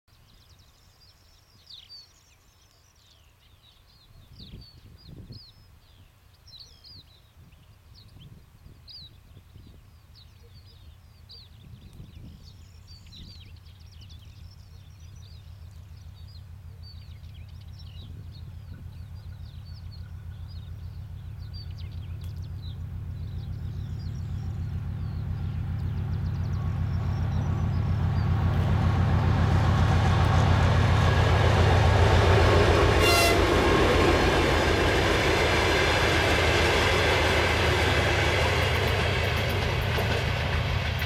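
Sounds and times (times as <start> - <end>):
small birds chirping: 0.2 - 30.9
low rumble gusts: 11.0 - 41.0
diesel locomotive drone: 11.9 - 41.0.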